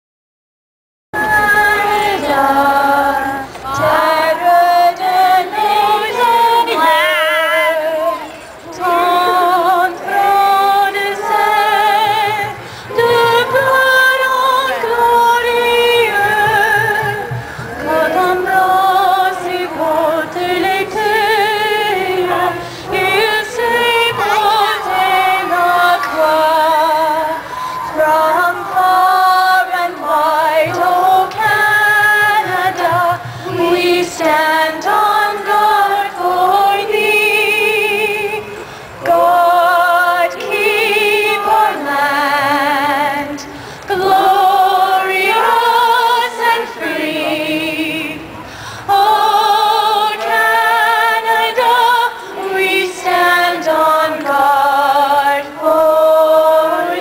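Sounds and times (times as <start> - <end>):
woman singing: 1.2 - 57.0.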